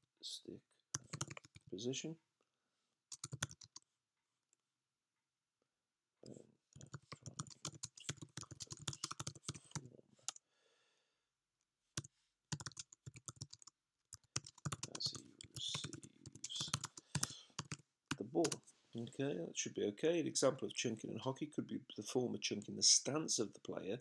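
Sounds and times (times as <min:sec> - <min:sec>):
typing on computer keyboard: 0:01.0 - 0:01.7, 0:03.1 - 0:03.8, 0:06.8 - 0:10.4, 0:12.5 - 0:17.8.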